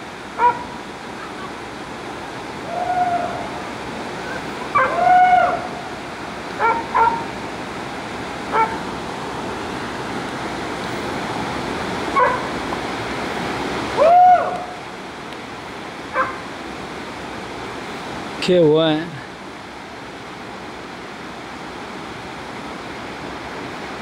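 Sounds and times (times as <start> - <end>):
river rushing: 0.0 - 24.0
dog barking: 0.4 - 0.6, 4.7 - 5.0, 6.6 - 7.2, 8.5 - 8.8, 12.2 - 12.5, 16.2 - 16.4
dog howling: 2.7 - 3.6, 4.7 - 5.8.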